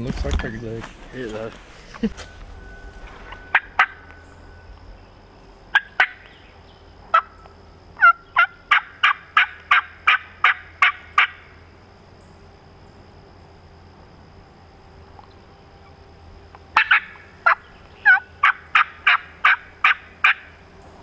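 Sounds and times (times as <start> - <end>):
turkey call yelps: 3.5 - 4.1, 5.7 - 6.4, 7.1 - 11.5, 16.8 - 20.6.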